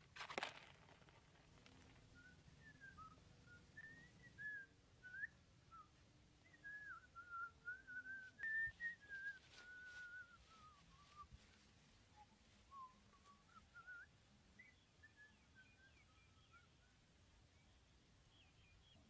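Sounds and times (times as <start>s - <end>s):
person whistling a tune: 6.6s - 11.3s.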